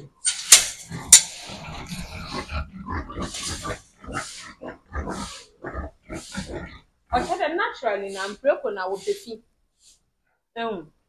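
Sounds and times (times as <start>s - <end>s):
pigs grunting: 0.7s - 9.4s.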